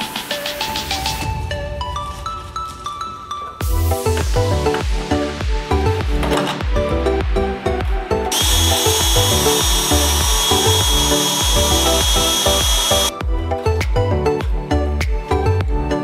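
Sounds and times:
background music with beat: 0.0s - 16.0s
cordless drill whining: 8.3s - 13.2s.

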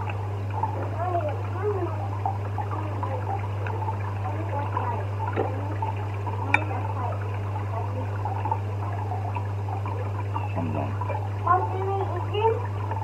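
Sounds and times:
water trickling and bubbling: 0.0s - 13.0s.

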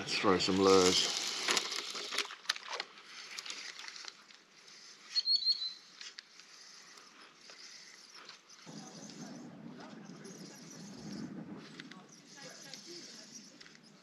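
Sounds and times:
reel soft patter and ticking: 0.0s - 5.2s, 5.8s - 14.0s
fishing reel clicks: 0.4s - 8.4s.

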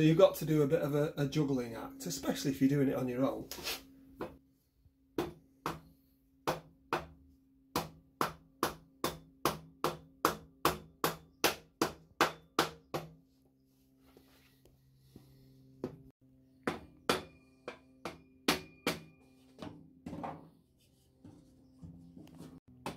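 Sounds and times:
hammer knocking on wooden block: 5.2s - 13.2s, 16.6s - 19.1s.

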